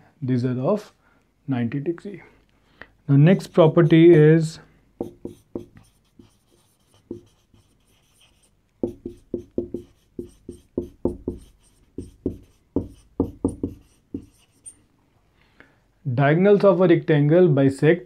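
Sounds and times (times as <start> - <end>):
marker writing on whiteboard: 5.0 - 14.8.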